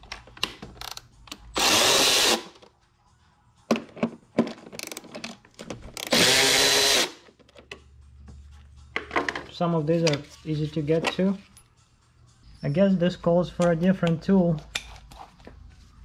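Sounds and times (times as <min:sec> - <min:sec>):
electric ratchet motor running: 0:01.6 - 0:02.5, 0:06.1 - 0:07.2.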